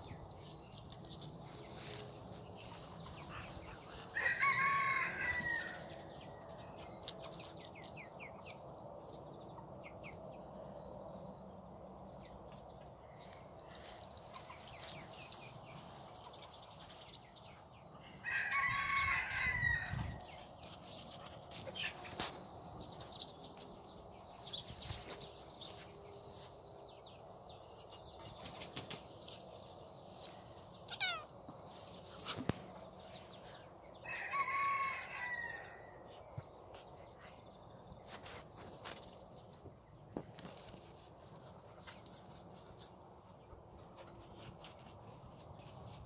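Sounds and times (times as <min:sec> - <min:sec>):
rooster crowing: 0:04.1 - 0:06.0, 0:18.2 - 0:20.2, 0:34.0 - 0:35.8.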